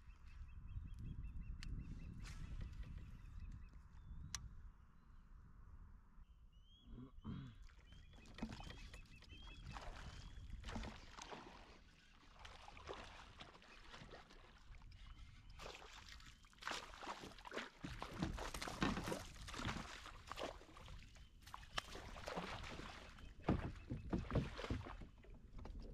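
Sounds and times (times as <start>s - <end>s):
fish splashing and thrashing in water: 7.7s - 25.9s.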